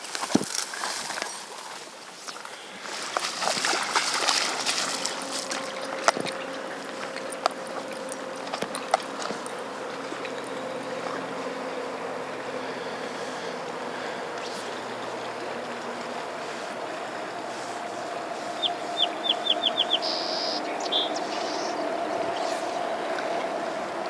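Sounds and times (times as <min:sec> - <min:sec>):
footsteps crunching on gravel: 0:00.0 - 0:09.6
flowing river water: 0:00.0 - 0:24.0
steady low hum: 0:01.4 - 0:24.0.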